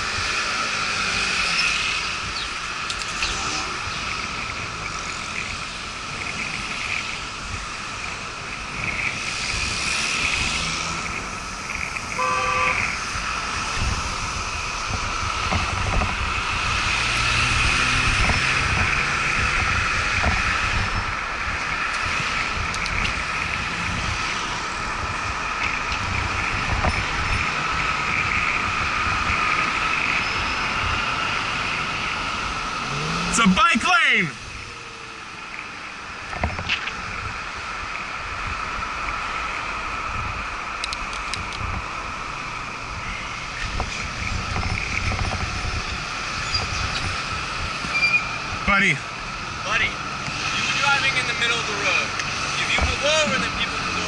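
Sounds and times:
steady traffic noise: 0.0 - 54.0
car horn blast: 12.1 - 12.9.

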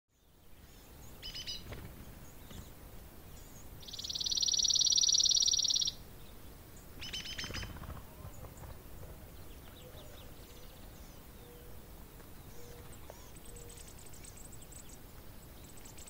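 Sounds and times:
short chirping calls: 0.6 - 2.8, 3.4 - 6.0, 6.8 - 8.7.

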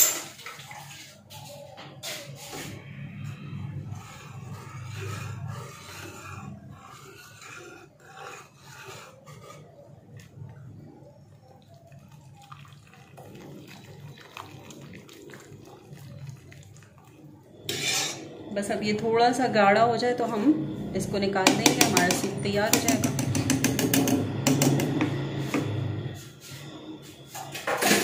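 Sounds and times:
whisk stirring thick soup: 3.5 - 18.2, 21.4 - 24.7.

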